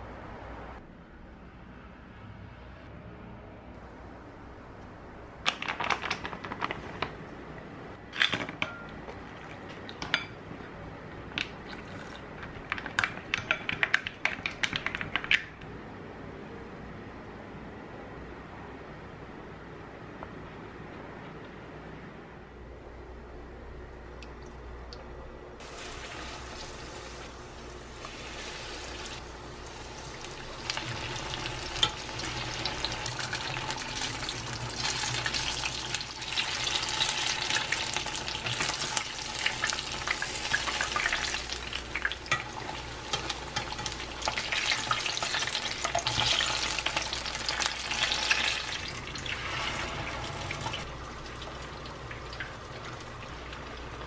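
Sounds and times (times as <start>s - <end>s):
deep-frying sizzle: 25.6s - 54.0s.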